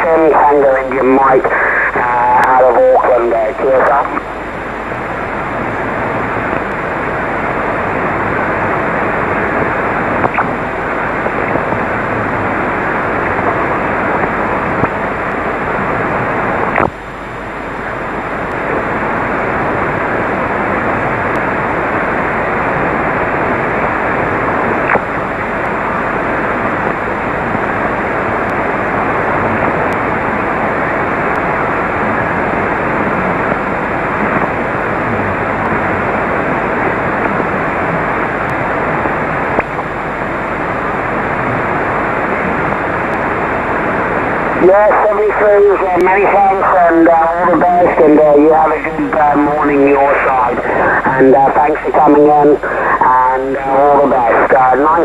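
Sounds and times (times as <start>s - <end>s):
radio static hiss: 0.0s - 55.0s.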